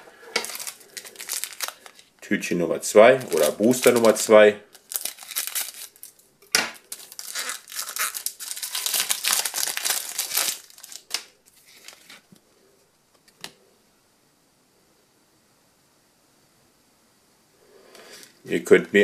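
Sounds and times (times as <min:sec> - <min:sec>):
foil wrapper crinkling: 0:00.4 - 0:02.1, 0:03.0 - 0:12.3.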